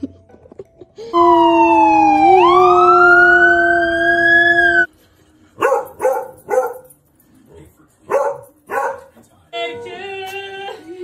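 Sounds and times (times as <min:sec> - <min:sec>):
loud wail gliding in pitch: 0:01.2 - 0:04.9
dog barking: 0:05.6 - 0:06.9, 0:08.1 - 0:09.1.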